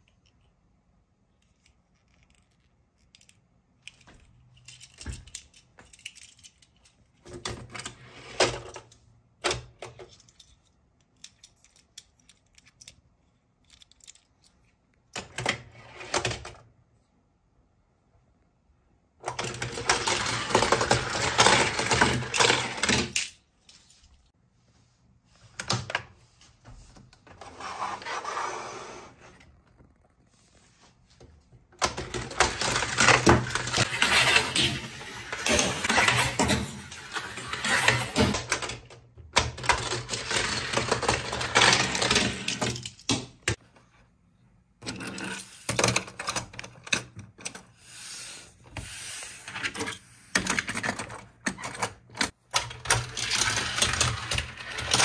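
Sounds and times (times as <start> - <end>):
toy cars rattling down plastic track: 19.3 - 23.2, 31.8 - 43.0, 52.6 - 55.0.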